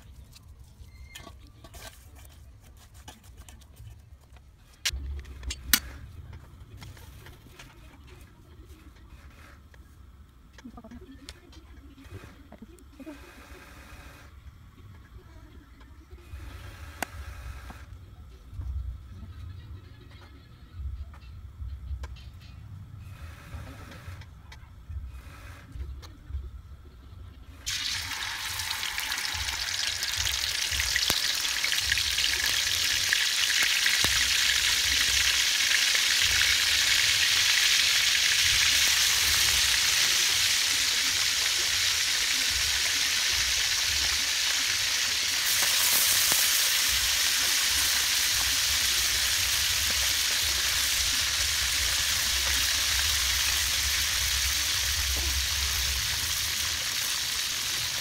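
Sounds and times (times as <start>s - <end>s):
fish frying in hot oil: 27.7s - 58.0s.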